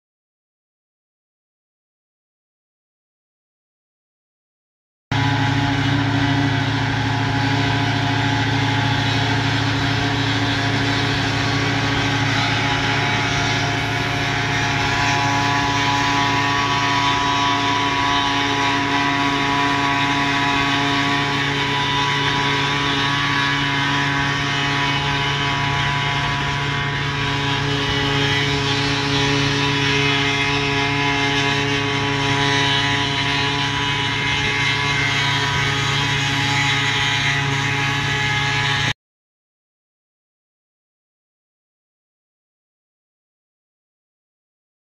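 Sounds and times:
tractor engine and forage harvester: 5.1 - 39.0.

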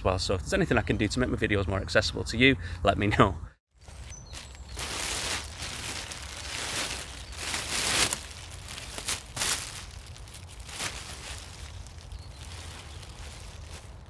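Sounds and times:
plastic bin bag rustling: 3.8 - 14.0.

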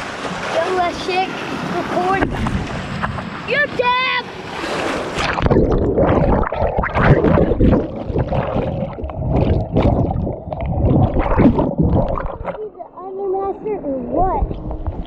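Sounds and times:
rushing water: 0.0 - 15.0
splash: 4.4 - 12.7
muffled underwater bubbling: 5.2 - 12.9.

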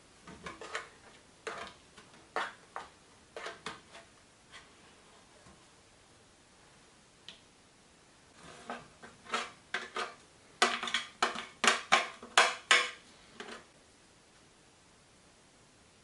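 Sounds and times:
metal grater scraping bread: 0.4 - 2.6, 8.4 - 10.2.

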